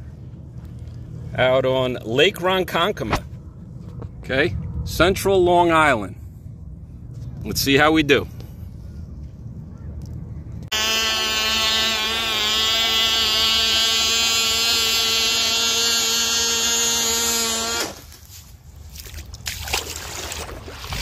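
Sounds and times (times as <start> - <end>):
model boat engine buzzing: 10.7 - 18.2.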